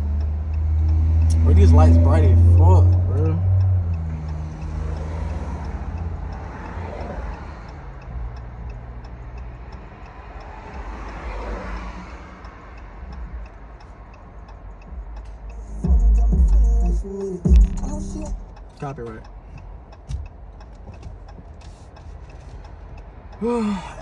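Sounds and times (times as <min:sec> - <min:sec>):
cars passing: 0:00.0 - 0:24.0
car engine idling: 0:13.0 - 0:24.0.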